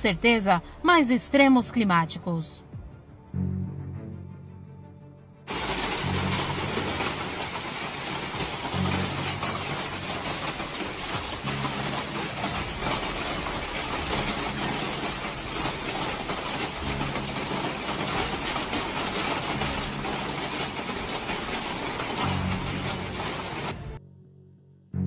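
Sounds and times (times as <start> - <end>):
hail and rain pelting: 5.5 - 24.0.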